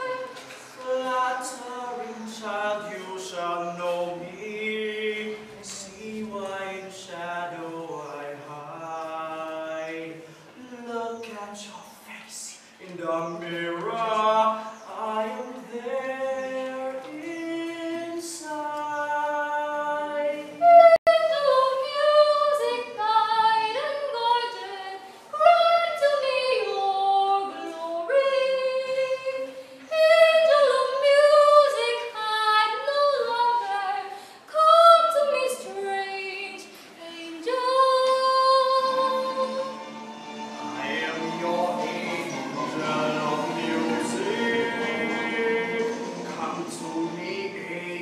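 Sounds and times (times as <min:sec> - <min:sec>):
young woman singing: 0:00.0 - 0:02.5, 0:16.6 - 0:39.8.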